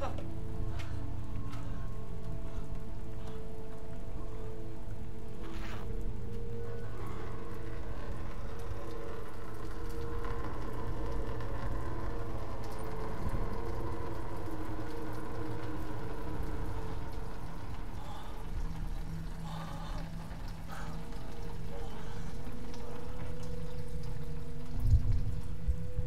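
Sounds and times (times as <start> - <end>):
low ambient drone tones: 0.0 - 26.0.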